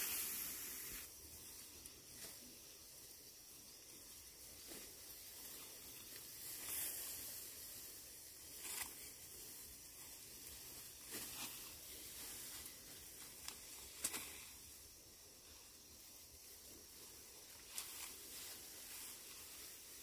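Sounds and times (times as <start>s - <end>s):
dry plants rustling: 0.0s - 20.0s.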